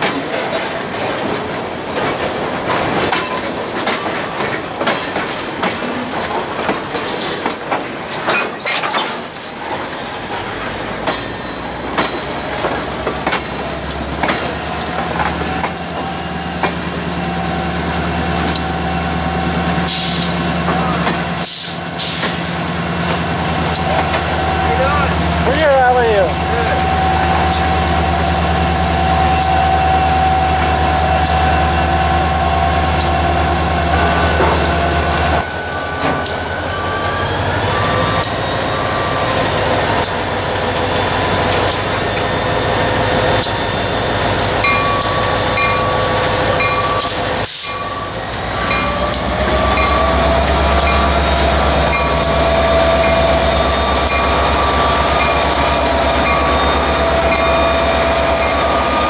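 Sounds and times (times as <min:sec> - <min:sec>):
wheels clicking over rail joints: 0:00.0 - 0:17.0
diesel locomotive engine drone: 0:00.0 - 0:59.0
wheels squealing on rail: 0:05.8 - 0:59.0.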